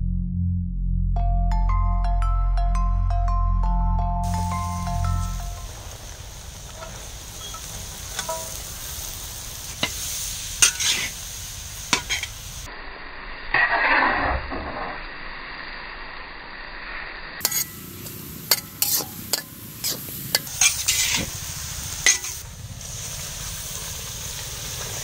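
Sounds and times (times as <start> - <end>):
vegetables sizzling in a pan: 4.3 - 25.0
metal spatula scraping a pan: 6.6 - 11.2, 11.9 - 12.4, 13.5 - 14.8, 17.4 - 21.4, 22.0 - 22.4.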